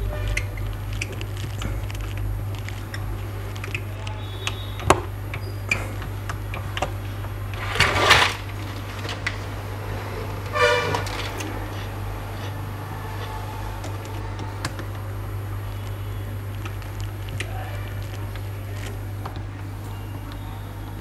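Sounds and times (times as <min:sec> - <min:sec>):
steady low hum: 0:00.0 - 0:21.0
scraping rustle: 0:07.0 - 0:13.8.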